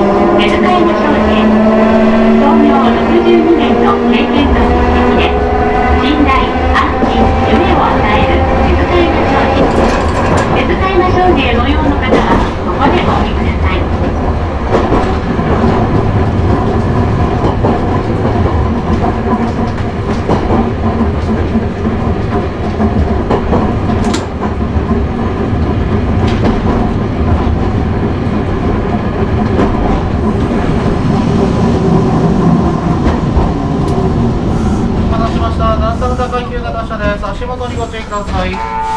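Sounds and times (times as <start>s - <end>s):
tram motors humming: 0.0s - 38.9s
wheels clicking over rail joints: 9.6s - 11.4s.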